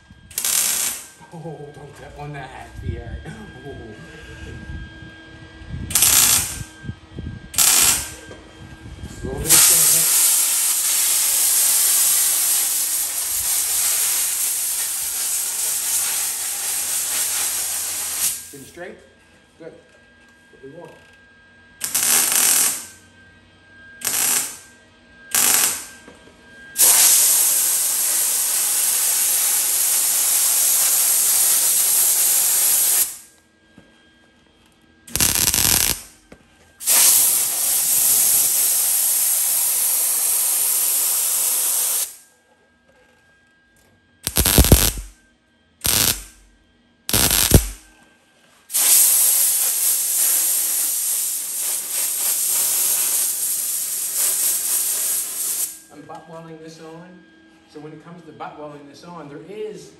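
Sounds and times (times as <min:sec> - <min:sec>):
air blow gun hissing: 0:00.3 - 0:01.1, 0:05.9 - 0:06.6, 0:07.6 - 0:08.2, 0:09.5 - 0:18.6, 0:21.8 - 0:22.9, 0:24.0 - 0:24.6, 0:25.3 - 0:25.9, 0:26.8 - 0:33.2, 0:35.1 - 0:36.1, 0:36.8 - 0:42.2, 0:44.2 - 0:45.1, 0:45.8 - 0:46.4, 0:47.1 - 0:47.8, 0:48.7 - 0:55.8
welder crackling bursts: 0:00.3 - 0:01.2, 0:05.9 - 0:06.6, 0:07.6 - 0:08.2, 0:09.5 - 0:18.5, 0:21.8 - 0:22.9, 0:24.0 - 0:24.6, 0:25.3 - 0:25.9, 0:26.8 - 0:33.2, 0:35.1 - 0:36.1, 0:36.8 - 0:42.2, 0:44.2 - 0:45.1, 0:45.8 - 0:46.4, 0:47.1 - 0:47.8, 0:48.7 - 0:55.8.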